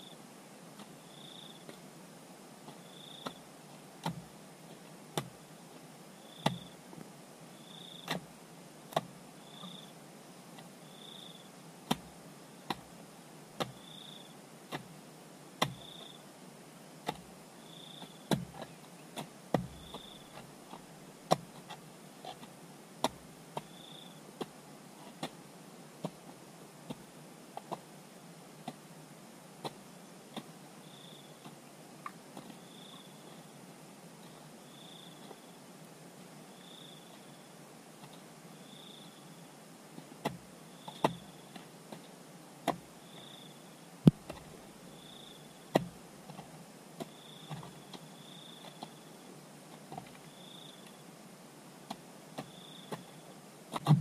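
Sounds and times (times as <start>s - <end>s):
low steady background: 0.0s - 54.0s
sharp knocks: 44.1s - 44.4s.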